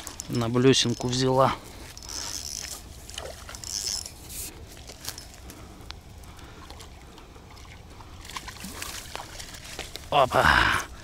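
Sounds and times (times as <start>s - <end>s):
spinning reel buzzing: 1.9s - 4.5s.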